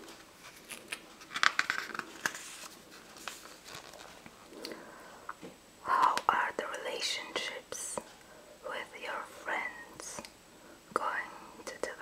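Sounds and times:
book pages turning: 0.0s - 4.4s.

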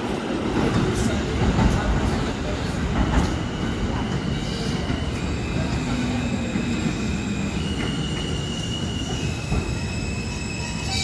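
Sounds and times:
train wheels rumbling on rail: 0.0s - 11.0s
high-pitched wheel squeal: 6.7s - 11.0s.

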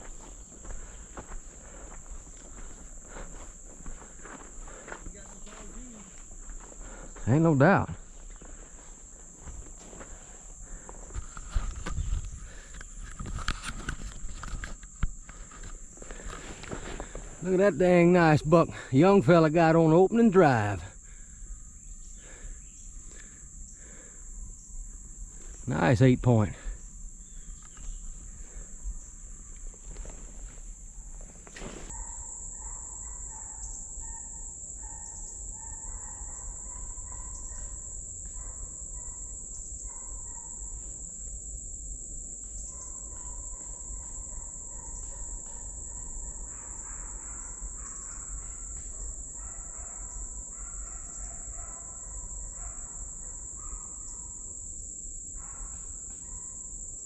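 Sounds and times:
high-pitched insect chorus: 0.0s - 57.0s
faint animal calls: 31.6s - 40.8s, 42.6s - 54.5s.

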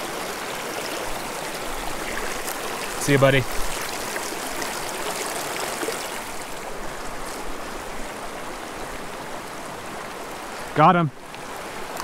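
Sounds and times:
creek water rushing: 0.0s - 12.0s.

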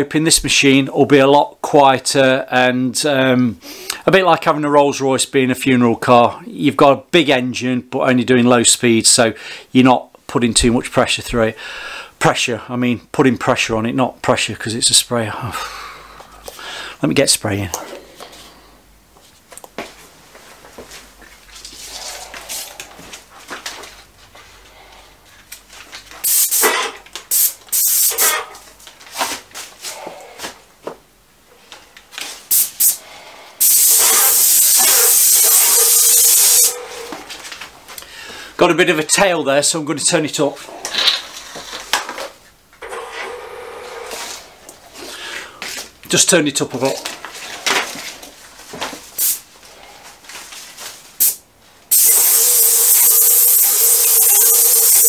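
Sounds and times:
airless paint sprayer spraying: 26.2s - 28.4s, 32.5s - 33.0s, 33.6s - 36.8s, 49.2s - 49.4s, 51.2s - 55.0s.

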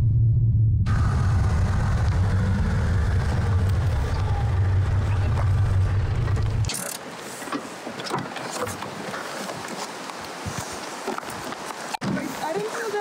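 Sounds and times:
car engine idling: 0.9s - 6.7s.

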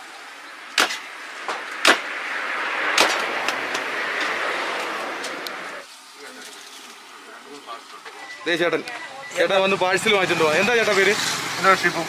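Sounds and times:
vehicle passing on road: 0.0s - 7.6s, 9.3s - 12.0s
sharp knocks: 0.8s - 2.1s, 2.9s - 4.3s.

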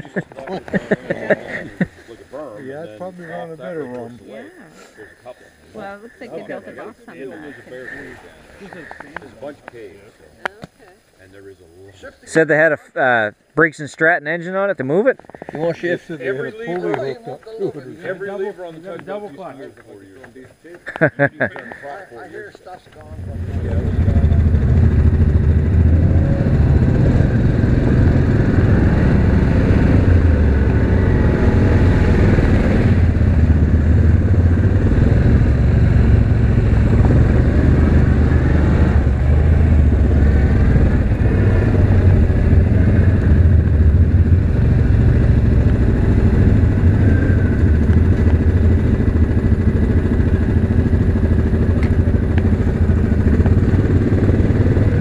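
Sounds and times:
atv engine revving: 22.9s - 55.0s.

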